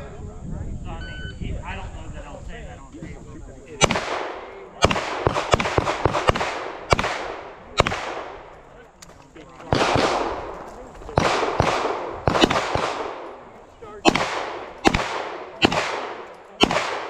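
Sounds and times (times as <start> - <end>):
handgun shots: 3.8 - 8.3, 11.2 - 13.3, 14.0 - 17.0
gunshot echo: 3.8 - 8.6, 9.7 - 17.0.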